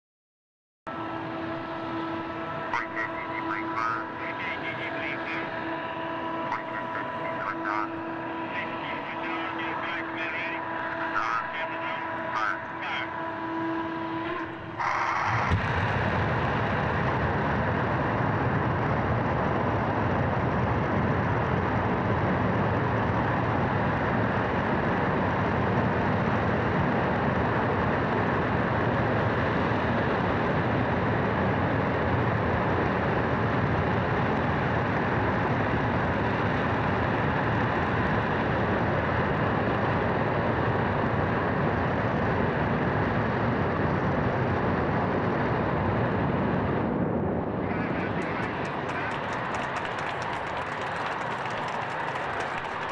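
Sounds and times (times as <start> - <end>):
rocket engine combustion roar: 0.9 - 52.9.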